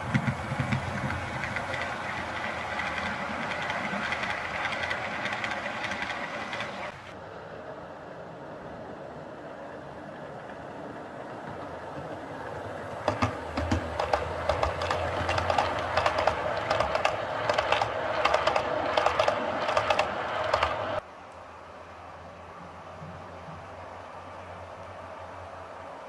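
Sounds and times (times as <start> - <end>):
model train wheels clicking: 0.0 - 7.2, 9.5 - 21.0.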